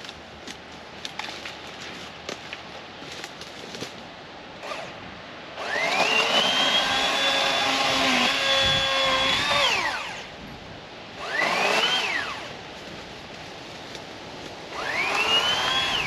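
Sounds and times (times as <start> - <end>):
electric chainsaw motor whine: 4.6 - 5.0, 5.6 - 10.3, 11.2 - 12.6, 14.7 - 16.0.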